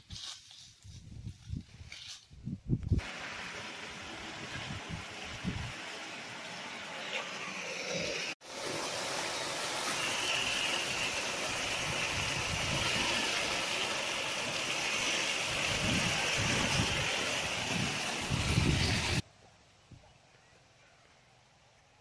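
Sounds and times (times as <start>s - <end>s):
water gushing into concrete tank: 3.0s - 19.2s.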